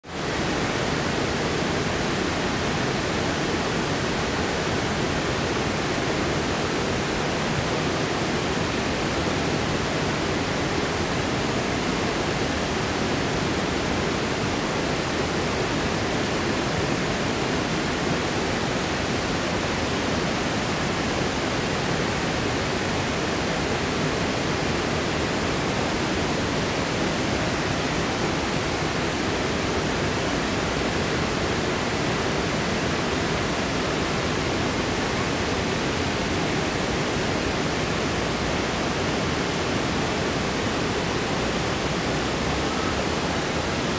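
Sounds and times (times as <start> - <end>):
river rushing over rocks: 0.1 - 43.9.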